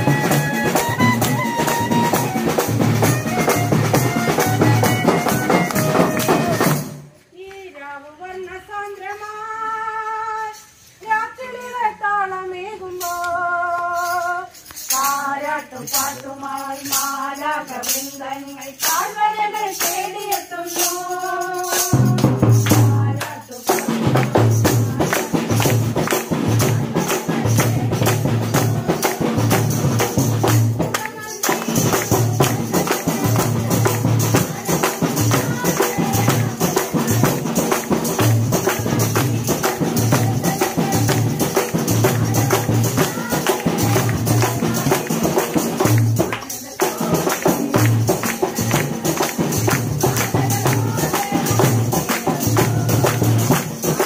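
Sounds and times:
large drum steady beat: 0.0 - 7.1, 21.9 - 54.0
tambourine jingling: 0.0 - 7.3, 8.1 - 54.0
group singing carols: 0.0 - 54.0.

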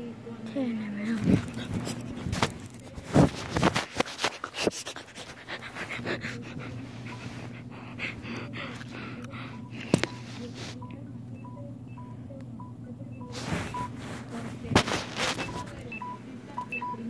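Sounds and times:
rapid panting breaths: 0.4 - 11.0
phone rubbing against blanket: 1.2 - 6.0, 10.0 - 10.9, 13.2 - 15.9.

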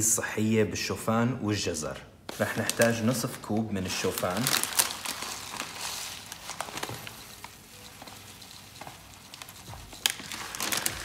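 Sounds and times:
plastic bag rustling: 2.3 - 11.0
oats pouring into a glass: 9.6 - 11.0.

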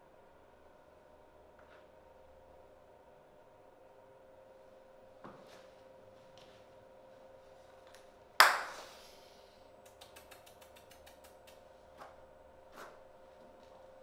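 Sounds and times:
steady faint hum: 0.0 - 14.0
faint clicks: 9.8 - 11.6.

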